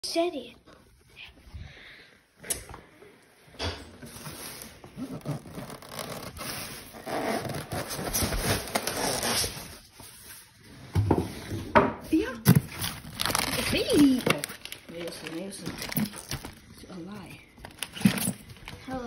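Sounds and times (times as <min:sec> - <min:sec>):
plastic bag rustling and crinkling: 0:04.0 - 0:10.6, 0:11.3 - 0:19.0
cardboard and styrofoam rubbing: 0:04.1 - 0:10.6.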